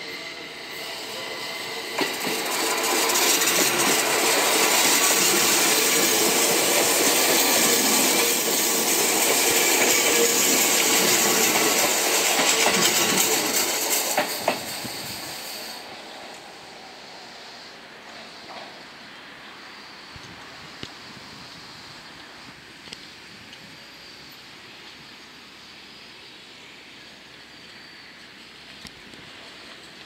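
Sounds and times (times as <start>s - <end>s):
train wheels rumbling and rattling: 0.4s - 16.5s.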